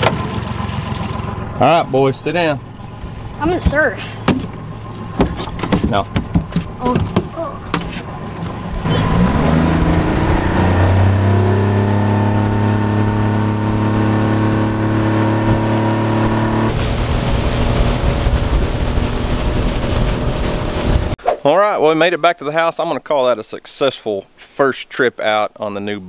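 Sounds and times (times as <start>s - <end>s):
outboard motor running: 0.0s - 21.2s
rushing sound: 16.7s - 21.6s.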